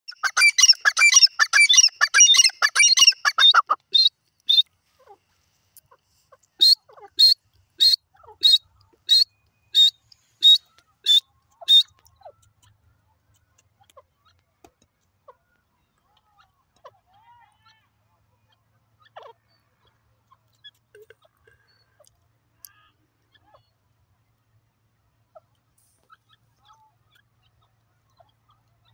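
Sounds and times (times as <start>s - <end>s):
bird calling harsh chattering: 0.1s - 4.6s, 6.6s - 12.7s.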